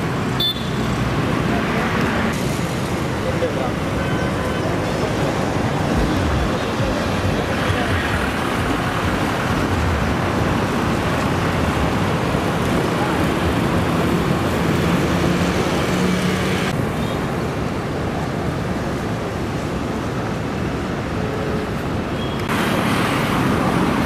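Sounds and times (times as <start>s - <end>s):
outdoor background noise: 0.0s - 24.0s
indistinct voices: 3.1s - 10.0s.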